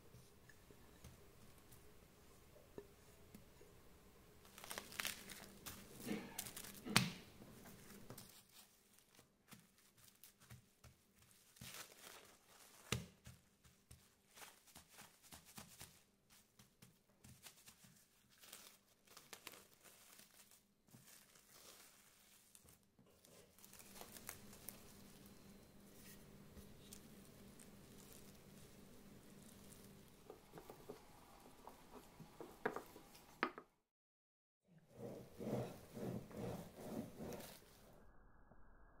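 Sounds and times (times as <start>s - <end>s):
cling film crinkling: 4.4s - 6.9s, 17.4s - 25.4s.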